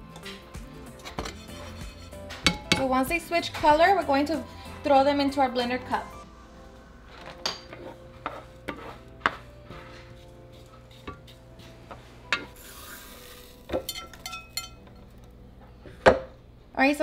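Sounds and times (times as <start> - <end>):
seeds toasting in a pan: 10.1 - 15.3
seeds pouring with hissing rush: 12.6 - 13.7.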